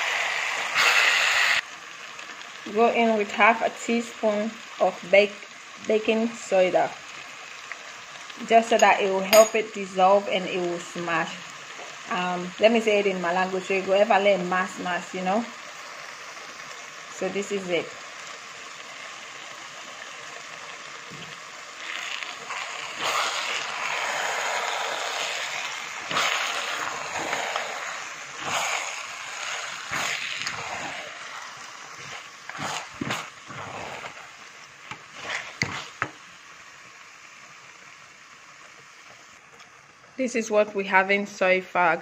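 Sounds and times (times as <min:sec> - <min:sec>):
stew simmering with a hiss: 0:00.0 - 0:42.0
wooden spoon stirring stew: 0:32.0 - 0:34.2, 0:34.9 - 0:36.2.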